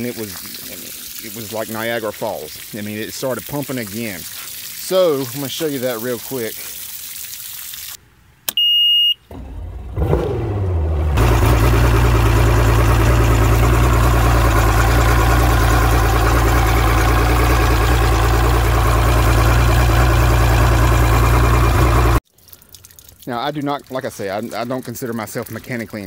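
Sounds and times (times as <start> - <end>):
short beep: 8.5 - 9.3
outboard engine cranking and idling: 9.3 - 22.2.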